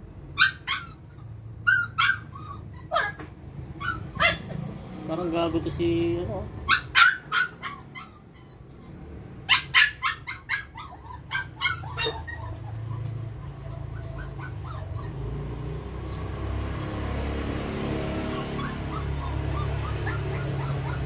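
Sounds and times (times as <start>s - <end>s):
dog barking: 3.8s - 4.5s, 6.7s - 7.9s.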